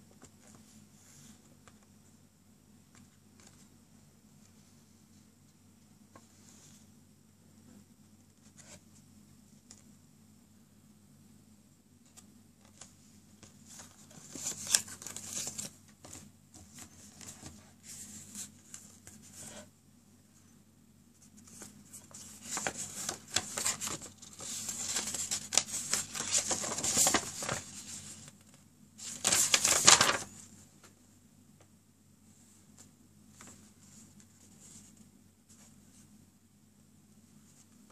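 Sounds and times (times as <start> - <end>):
paper rustling and crinkling: 12.1 - 19.7, 21.2 - 30.9.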